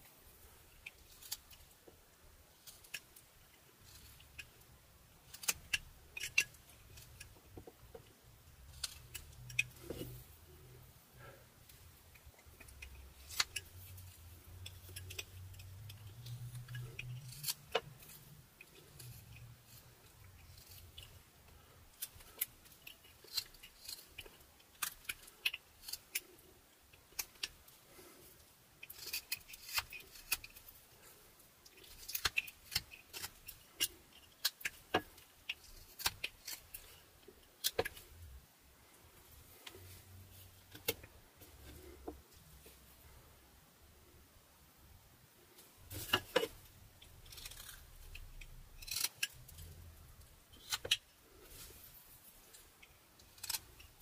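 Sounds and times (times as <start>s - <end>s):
knife cutting wood: 28.8s - 30.6s.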